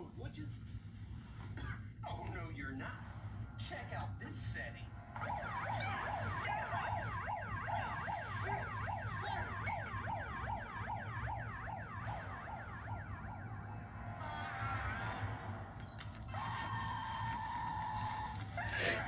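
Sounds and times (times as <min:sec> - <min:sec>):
steady low hum: 0:00.0 - 0:19.0
siren wailing in yelp pattern: 0:04.8 - 0:19.0.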